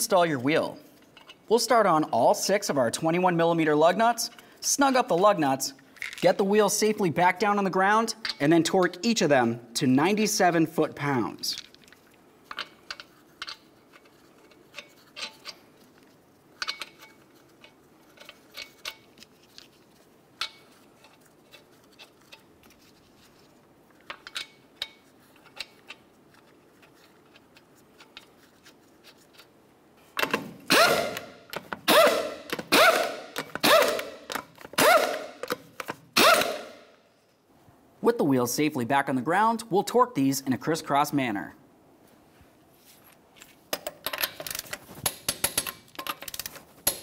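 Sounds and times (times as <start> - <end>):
power tool bursts: 30.7 - 31.3, 31.9 - 34.2, 36.2 - 36.8.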